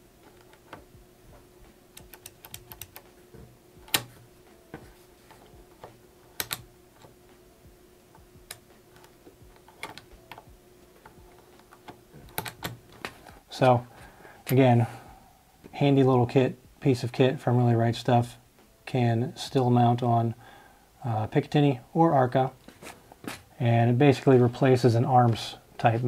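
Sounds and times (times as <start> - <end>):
metal lever clicks: 12.3 - 12.8.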